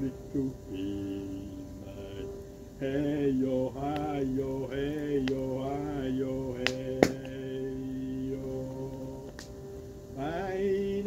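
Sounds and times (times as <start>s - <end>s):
log fire crackling: 0.0s - 11.0s
voices singing a slow chant: 0.0s - 11.0s
fire popping: 3.8s - 10.0s.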